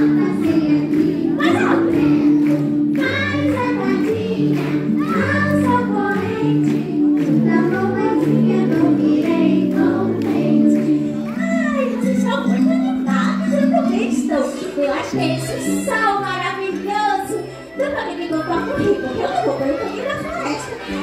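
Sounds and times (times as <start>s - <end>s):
several voices singing: 0.0s - 11.3s.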